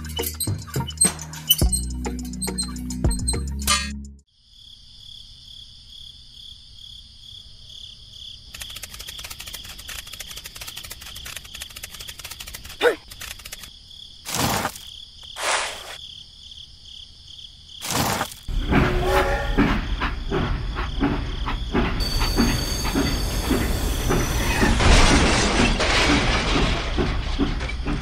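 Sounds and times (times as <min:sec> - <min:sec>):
toy train rhythmic clicking: 0:08.5 - 0:13.7.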